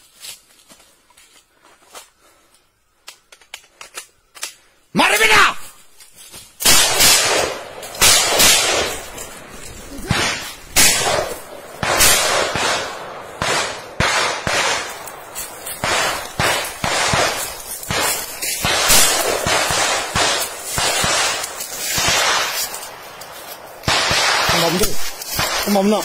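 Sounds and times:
gunshots echoing: 0:06.6 - 0:26.0.

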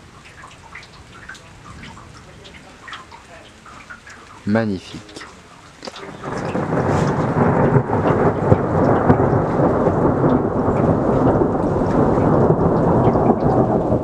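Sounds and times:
thunder rumbling: 0:05.7 - 0:14.0.

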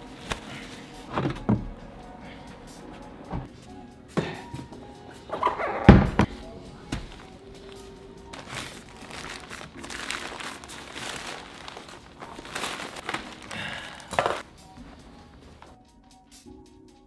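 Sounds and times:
paper bedding crinkling and rustling: 0:06.9 - 0:15.8.

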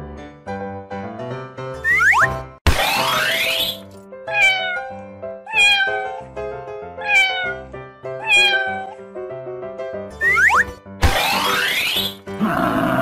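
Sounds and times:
light children's music: 0:00.6 - 0:12.4
cat meowing: 0:04.3 - 0:06.3, 0:07.0 - 0:09.0.

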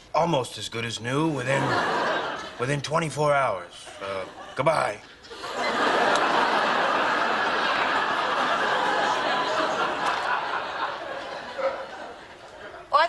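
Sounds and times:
studio audience laughing: 0:01.5 - 0:02.7, 0:04.0 - 0:12.9.

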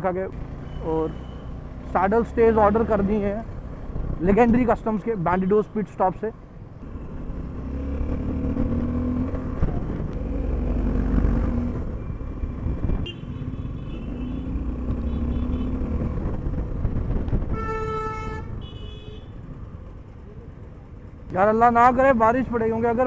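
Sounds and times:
wind and road noise: 0:00.0 - 0:23.0
motorcycle engine: 0:06.8 - 0:17.7
vehicle horn: 0:13.0 - 0:15.8, 0:17.5 - 0:19.4.

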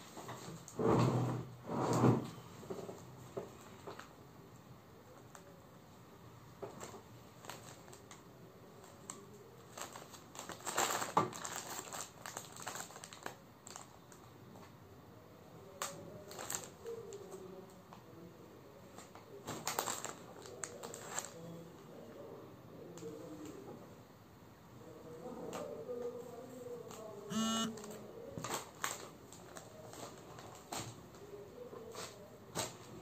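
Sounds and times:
plastic crinkling: 0:07.4 - 0:08.2, 0:09.7 - 0:13.9, 0:16.3 - 0:16.7, 0:19.6 - 0:21.4.

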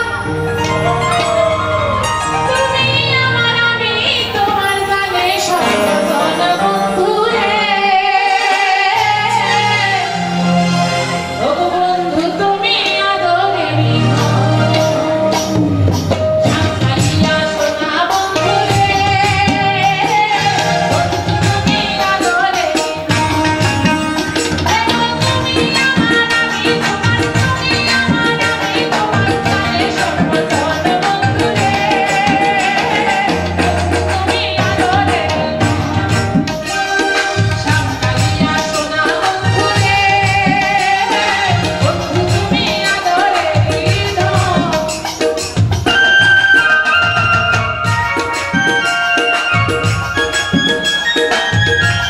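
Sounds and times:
electronic keyboard chords: 0:00.0 - 0:08.4
tabla: 0:00.0 - 0:11.0, 0:11.6 - 0:52.0
electronic keyboard: 0:00.0 - 0:52.0
woman singing into a microphone: 0:00.0 - 0:52.0.

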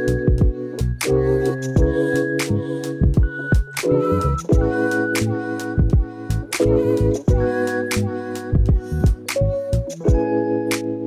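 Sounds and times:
sustained keyboard chords: 0:00.0 - 0:11.0
deep kick drums: 0:00.1 - 0:01.2, 0:01.8 - 0:02.0, 0:03.0 - 0:03.8, 0:04.5 - 0:04.8, 0:05.8 - 0:06.2, 0:07.3 - 0:07.5, 0:08.6 - 0:09.3.

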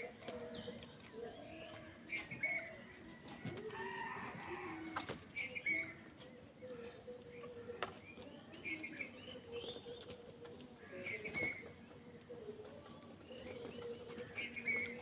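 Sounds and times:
crows and mynas calling: 0:00.0 - 0:08.0.

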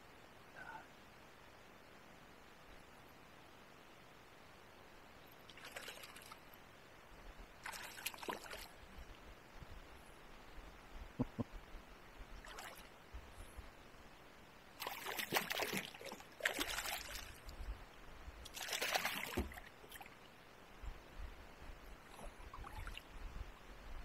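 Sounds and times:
paddle splashing in water: 0:07.6 - 0:08.7, 0:14.8 - 0:17.4, 0:18.5 - 0:20.1.

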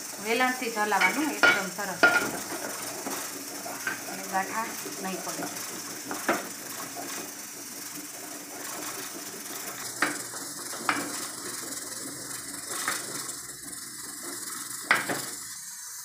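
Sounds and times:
thick dough being stirred: 0:00.0 - 0:15.6
wooden pin knocking on pot: 0:01.0 - 0:03.2, 0:10.0 - 0:11.2, 0:14.9 - 0:15.3.

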